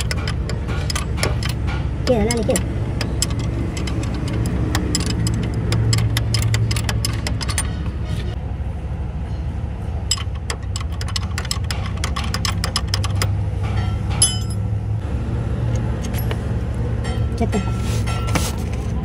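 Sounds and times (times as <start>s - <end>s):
wrenches clicking on bolts: 0.0s - 7.9s, 10.1s - 14.6s
steady low hum: 0.0s - 19.0s.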